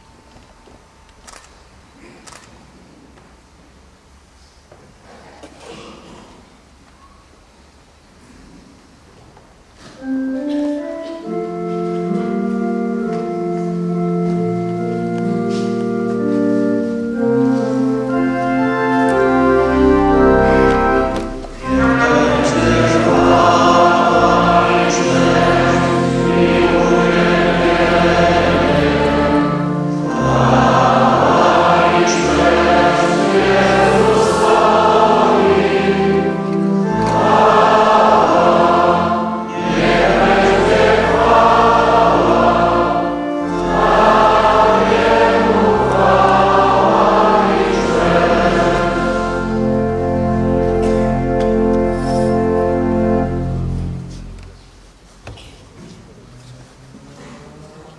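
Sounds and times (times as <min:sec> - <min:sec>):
church organ chords: 0:09.8 - 0:55.0
congregation singing a hymn: 0:10.0 - 0:54.4.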